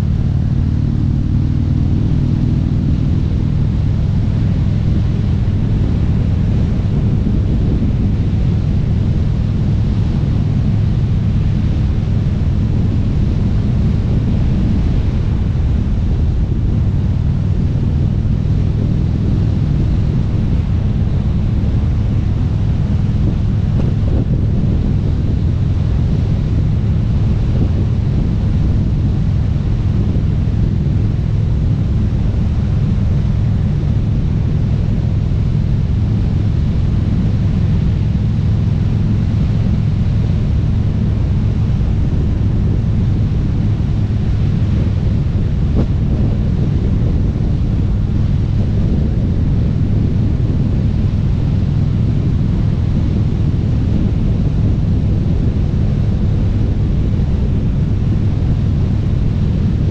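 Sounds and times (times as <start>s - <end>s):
motorcycle engine cruising: 0.0s - 59.9s
wind buffeting microphone: 0.0s - 59.9s.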